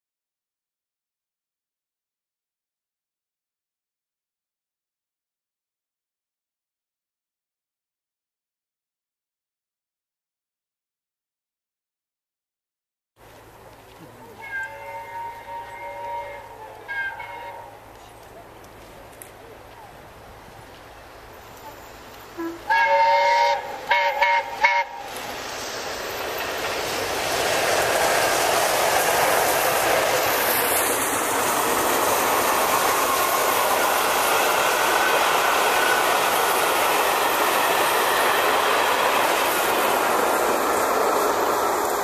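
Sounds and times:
train running past on rails: 0:13.2 - 0:42.0
steam locomotive whistle: 0:14.4 - 0:17.9, 0:22.3 - 0:25.3.

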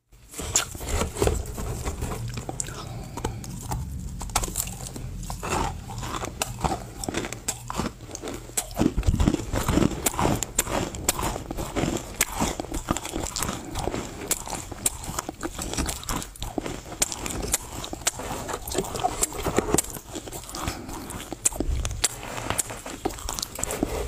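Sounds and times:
steady low hum: 0:00.0 - 0:24.0
crunching and chewing: 0:00.2 - 0:24.0.

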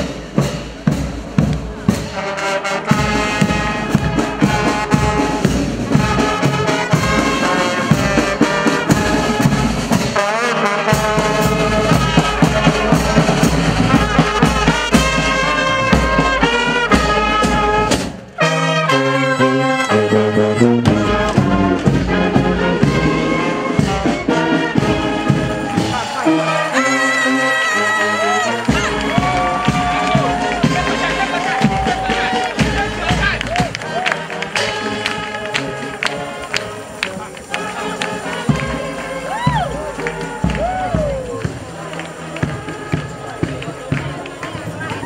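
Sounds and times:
marching brass band playing: 0:00.0 - 0:45.0.

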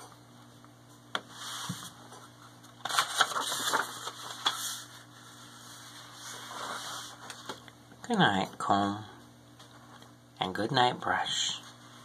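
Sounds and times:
book pages rustling: 0:01.2 - 0:07.7.

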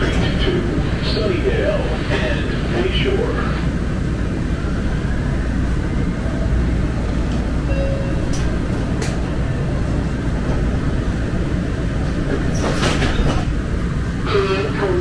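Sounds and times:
light rail train rumbling: 0:00.0 - 0:15.0.

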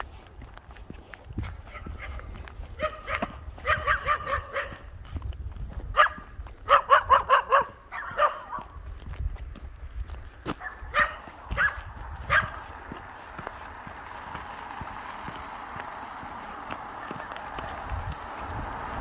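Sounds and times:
dog barking: 0:01.4 - 0:04.9, 0:05.9 - 0:08.8, 0:10.6 - 0:12.7.

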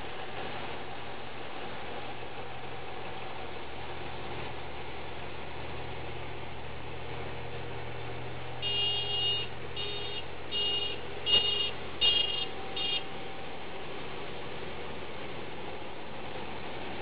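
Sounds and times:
low engine drone: 0:00.0 - 0:17.0
vehicle horn honking: 0:08.6 - 0:13.2.

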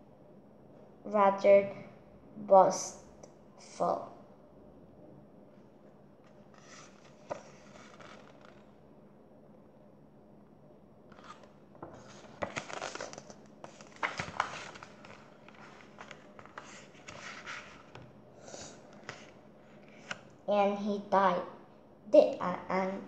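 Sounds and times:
book pages rustling and turning: 0:06.2 - 0:08.7, 0:11.1 - 0:18.1, 0:18.7 - 0:20.4
paper crackles: 0:06.5 - 0:08.7, 0:11.1 - 0:18.0.

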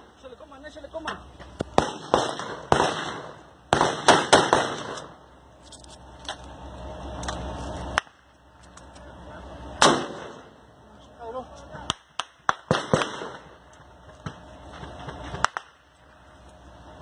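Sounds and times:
echoing gunshots: 0:01.7 - 0:05.2, 0:09.8 - 0:10.6, 0:11.9 - 0:13.6.

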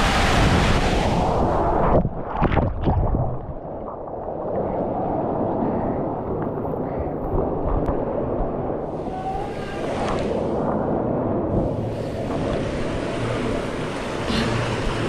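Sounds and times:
muffled rush of water: 0:00.0 - 0:15.0.

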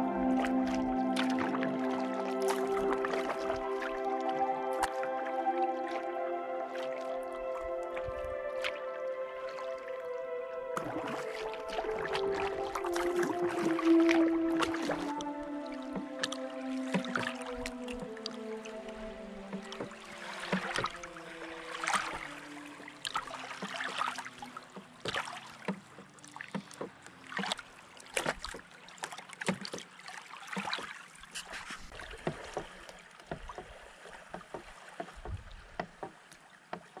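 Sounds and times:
music held notes: 0:00.0 - 0:23.4
waves lapping on shore: 0:00.0 - 0:37.0.

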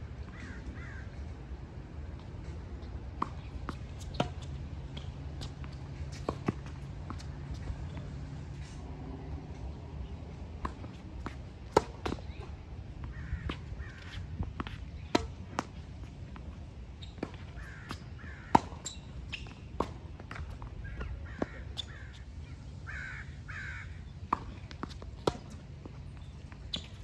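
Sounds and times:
crow cawing: 0:00.4 - 0:01.0, 0:22.9 - 0:23.9
tennis ball hits and bounces: 0:03.1 - 0:08.3, 0:10.1 - 0:21.8, 0:24.3 - 0:27.0.

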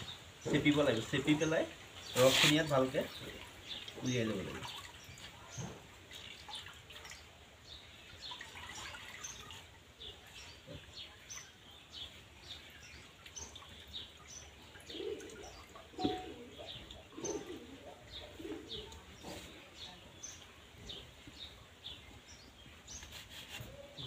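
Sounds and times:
dove cooing: 0:14.8 - 0:19.5.

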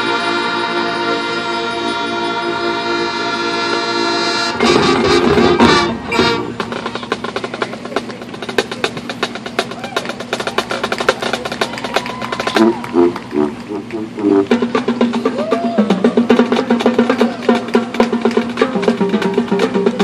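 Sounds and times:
marching band brass chord: 0:00.0 - 0:09.5, 0:12.3 - 0:20.0.

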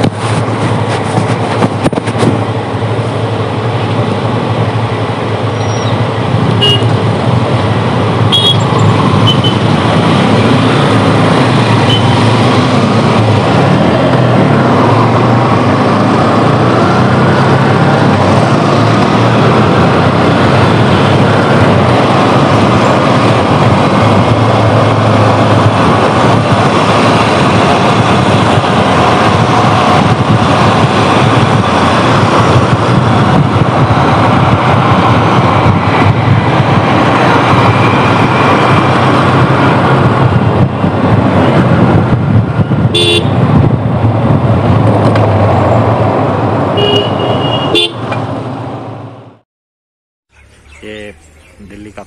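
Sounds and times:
traffic: 0:00.0 - 0:49.4, 0:50.3 - 0:52.0
wind rushing over microphone: 0:00.0 - 0:49.4
motorcycle engine: 0:00.1 - 0:49.0
vehicle horn tooting: 0:06.6 - 0:07.0, 0:08.3 - 0:08.7, 0:42.9 - 0:43.4, 0:46.8 - 0:48.1.

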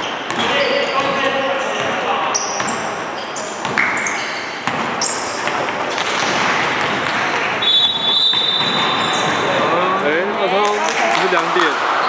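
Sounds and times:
basketball bouncing: 0:00.0 - 0:01.2, 0:02.6 - 0:02.9, 0:03.6 - 0:09.6
spectators talking and shouting: 0:02.6 - 0:12.0
footfalls on hardwood court: 0:03.6 - 0:09.6.

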